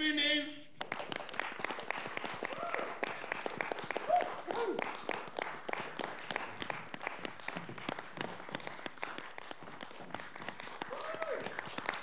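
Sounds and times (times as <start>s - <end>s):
audience applauding: 0.8s - 12.0s
short cheering voices: 2.4s - 3.0s, 4.0s - 4.9s, 10.9s - 11.6s.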